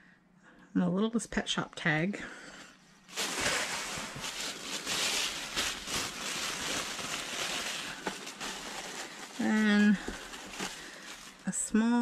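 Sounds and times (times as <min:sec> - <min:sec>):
packaging rustling and crinkling: 0:03.1 - 0:11.6.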